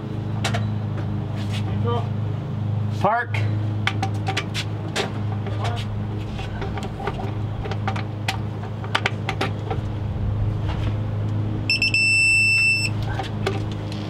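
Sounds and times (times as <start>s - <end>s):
steady low hum: 0.0s - 14.0s
high electronic beeps: 11.7s - 13.0s.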